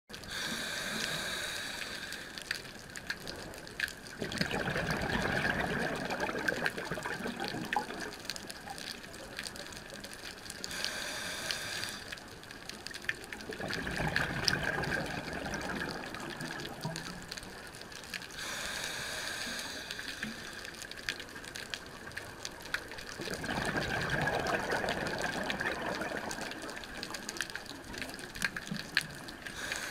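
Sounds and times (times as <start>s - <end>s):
regulator inhale hiss: 0.3s - 2.5s, 10.7s - 12.2s, 18.4s - 20.7s, 29.5s - 29.9s
exhaled bubbles gushing: 4.2s - 9.3s, 13.4s - 17.5s, 23.1s - 29.6s.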